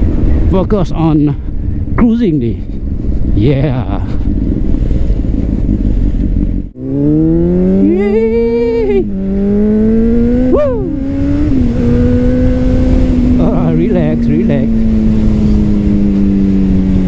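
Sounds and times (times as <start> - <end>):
wind rush: 0.0 - 17.0
motorcycle engine revving: 6.6 - 17.0.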